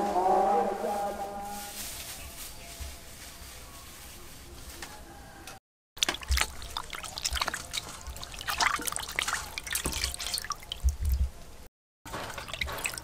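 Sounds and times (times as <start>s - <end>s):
hands sloshing meat in water: 6.0s - 11.3s, 12.1s - 13.0s
water splashes and drips: 6.0s - 13.0s.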